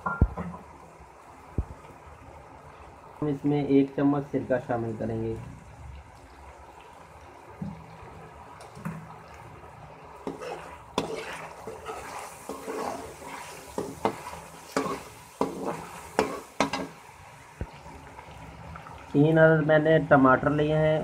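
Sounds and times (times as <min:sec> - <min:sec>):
chicken sizzling in oil: 0:00.0 - 0:21.0
spoon scraping and clattering in wok: 0:10.2 - 0:17.0.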